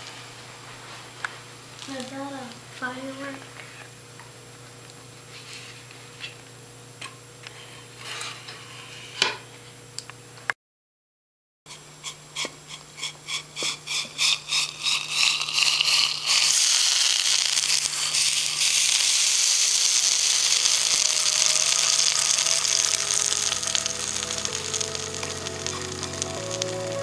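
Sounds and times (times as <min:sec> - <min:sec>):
hissing sizzle of boiling liquid: 0:00.0 - 0:03.3, 0:11.7 - 0:27.0.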